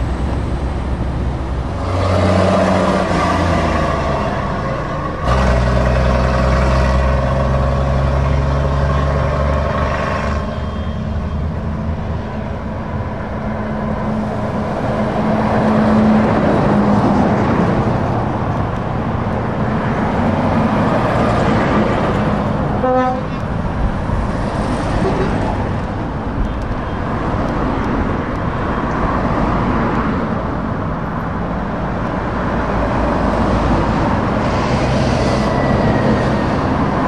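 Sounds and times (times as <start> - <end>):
diesel lorries driving past: 0.0 - 37.0
horn toot: 22.8 - 23.4.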